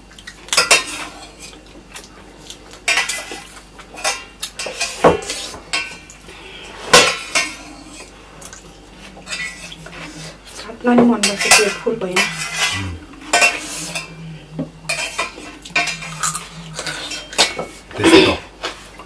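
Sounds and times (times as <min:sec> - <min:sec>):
metal spoon scraping brass plate: 0:11.2 - 0:14.2.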